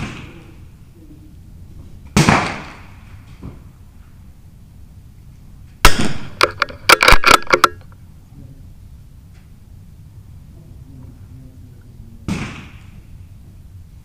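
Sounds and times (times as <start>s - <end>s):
rifle shots cracking: 2.2s - 3.0s, 5.8s - 7.8s.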